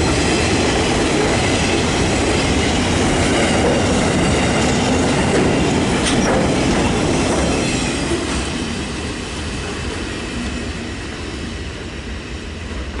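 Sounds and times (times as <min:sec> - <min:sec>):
freight train rolling on rails: 0:00.0 - 0:13.0.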